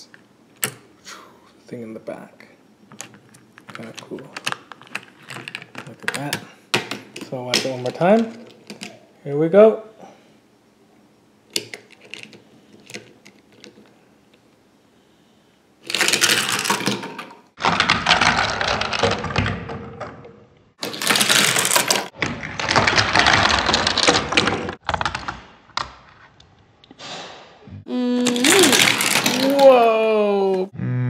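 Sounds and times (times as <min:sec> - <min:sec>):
toy car clicking on plastic track: 0:28.3 - 0:29.8.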